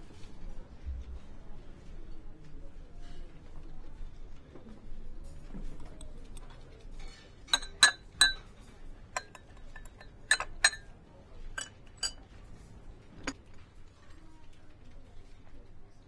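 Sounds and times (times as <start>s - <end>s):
teaspoon clinking in cup: 7.0s - 10.9s, 11.6s - 12.3s.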